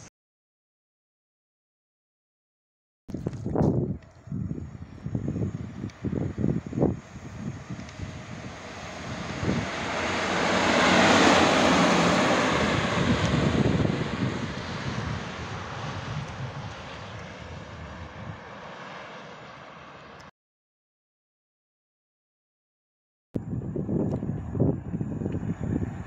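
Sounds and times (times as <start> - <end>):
locomotive wheels rushing on rails: 4.0 - 17.6.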